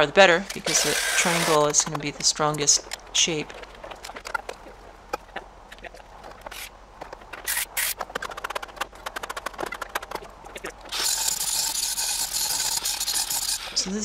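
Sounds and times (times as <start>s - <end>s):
plasma cutter hissing: 0.6s - 1.7s, 10.9s - 14.0s
sharp clicks and taps: 1.6s - 13.6s.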